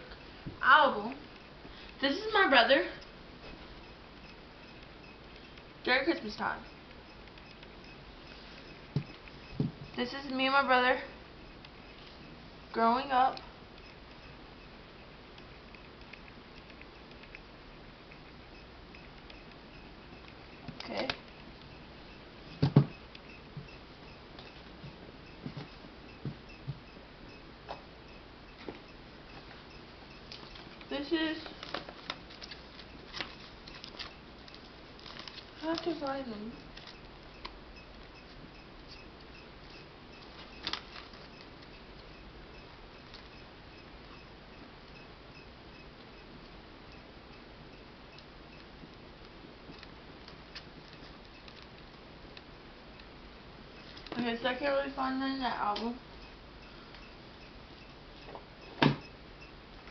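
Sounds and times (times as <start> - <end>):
pages rustling: 35.0 - 36.0.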